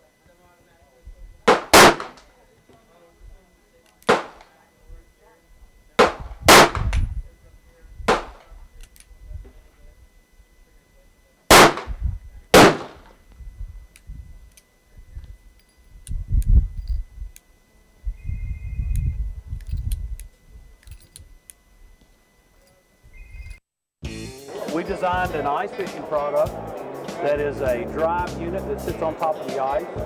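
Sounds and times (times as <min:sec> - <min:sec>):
revolver shots with echo: 0:01.4 - 0:02.2, 0:12.6 - 0:13.0.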